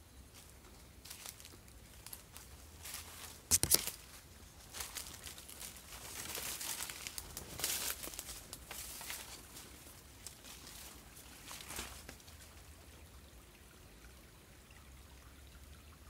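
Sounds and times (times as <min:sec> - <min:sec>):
footsteps crunching dry leaves: 0:00.3 - 0:12.1
brushing through undergrowth: 0:01.0 - 0:12.2.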